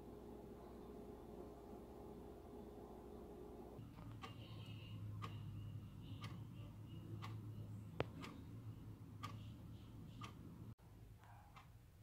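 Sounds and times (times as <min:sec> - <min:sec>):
low steady hum: 0:00.0 - 0:12.0
wall clock ticking: 0:03.8 - 0:12.0.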